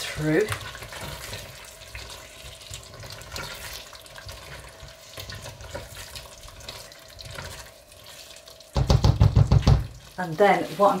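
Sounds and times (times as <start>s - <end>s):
spatula scraping pot: 0.0s - 8.2s
spatula stirring thick curry: 0.0s - 8.5s.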